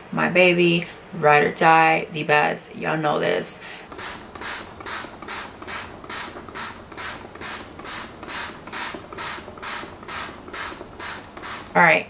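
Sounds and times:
spray bottle spritzes: 3.9s - 11.8s.

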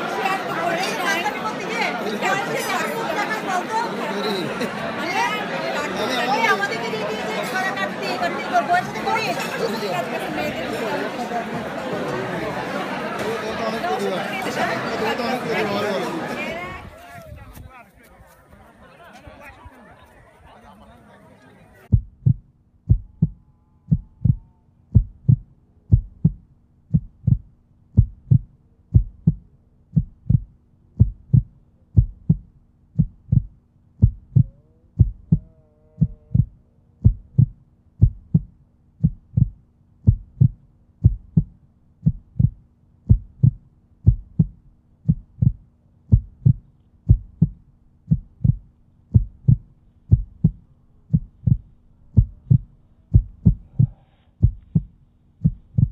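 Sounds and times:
deep heartbeat-like thumps: 21.9s - 55.9s.

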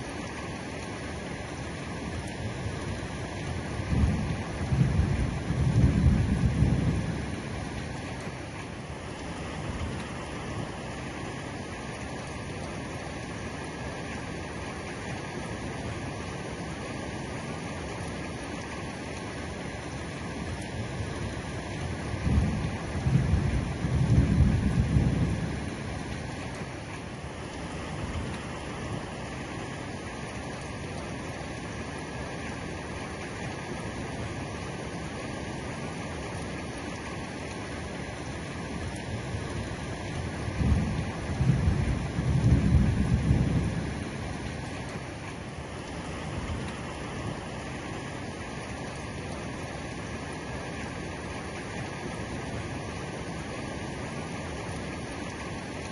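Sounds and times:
heavy rain on roof: 0.0s - 55.9s
thunder rumbling: 3.7s - 7.9s, 21.9s - 26.3s, 38.9s - 45.0s.

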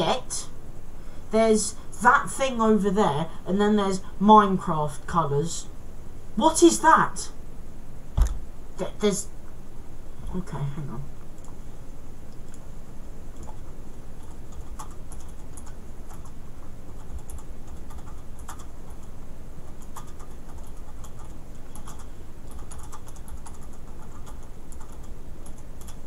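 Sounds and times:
typing on computer keyboard: 13.4s - 26.0s.

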